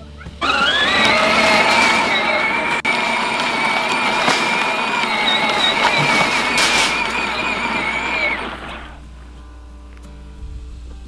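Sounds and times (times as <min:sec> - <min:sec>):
toy tractor motor whining: 0:00.2 - 0:09.0
plastic wheels rattling: 0:00.4 - 0:09.0.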